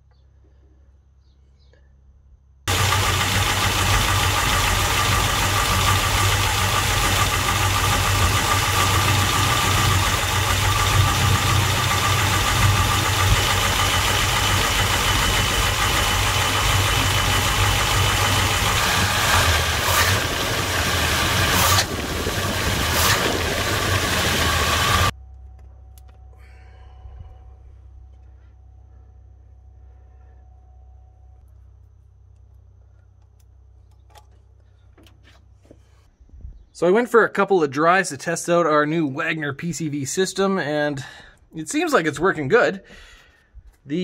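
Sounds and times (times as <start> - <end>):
v eight engine idling: 2.7 - 34.0.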